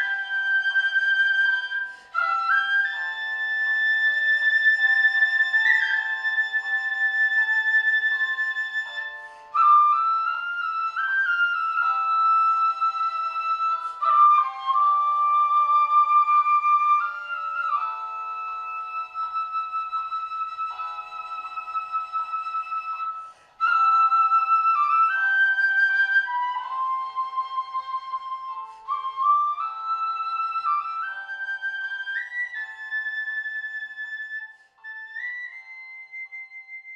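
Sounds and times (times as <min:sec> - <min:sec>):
bamboo flute melody: 0:00.0 - 0:36.9.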